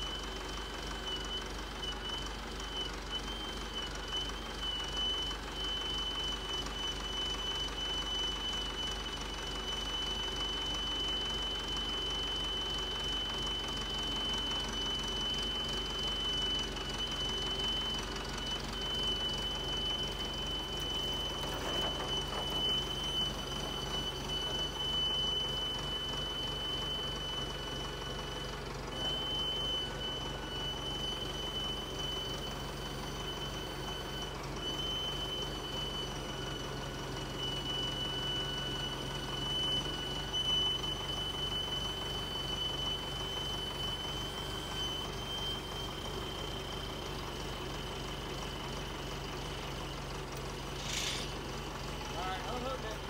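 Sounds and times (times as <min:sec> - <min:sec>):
engine idling: 0:00.0 - 0:53.0
high-pitched whine: 0:50.7 - 0:51.4.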